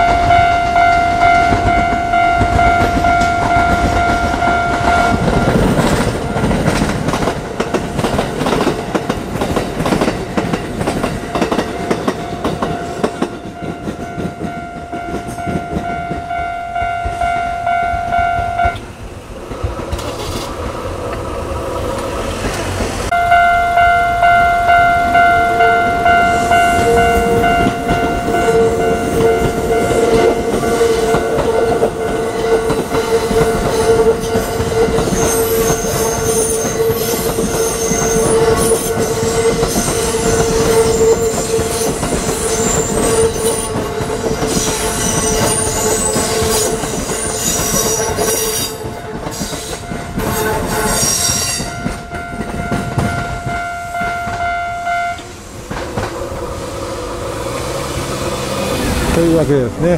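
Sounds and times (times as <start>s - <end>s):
pulsing ringing tone: 0.0s - 6.8s, 11.2s - 18.8s, 23.1s - 44.4s, 49.8s - 55.3s
train running past: 0.0s - 59.9s
high wheel squeal: 23.1s - 55.2s.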